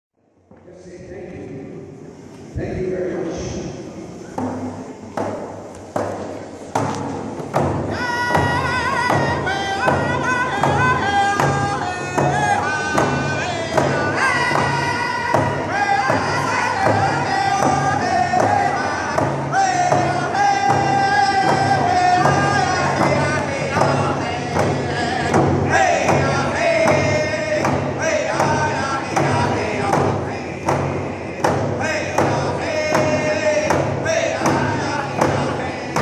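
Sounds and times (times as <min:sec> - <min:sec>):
hand drums beating: 0:04.4 - 0:36.0
men singing together: 0:07.9 - 0:36.0.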